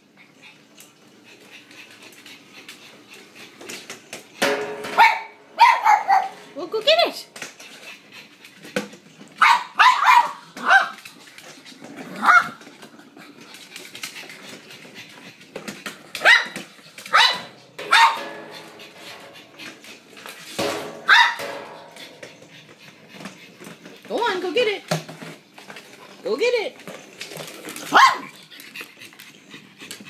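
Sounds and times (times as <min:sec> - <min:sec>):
dog barking: 0:05.0 - 0:06.4, 0:09.4 - 0:11.0, 0:16.2 - 0:18.3, 0:21.1 - 0:21.6, 0:27.9 - 0:28.3.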